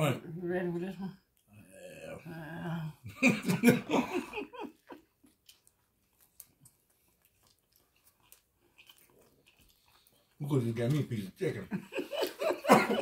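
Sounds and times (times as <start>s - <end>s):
person laughing: 3.1s - 5.0s, 11.8s - 13.0s
biting and chewing sandwich: 5.2s - 11.2s.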